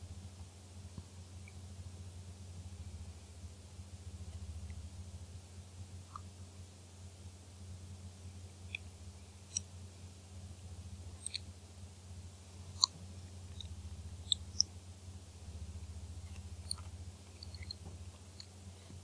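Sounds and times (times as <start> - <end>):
low electrical hum: 0.0 - 19.0
sharp high-pitched ticks: 9.5 - 9.7, 11.2 - 11.5, 12.7 - 14.7, 16.2 - 18.6.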